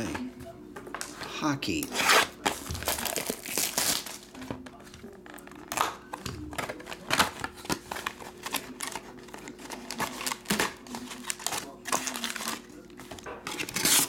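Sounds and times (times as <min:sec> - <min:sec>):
plastic shrink wrap crinkling: 0:01.8 - 0:04.6, 0:06.6 - 0:14.0.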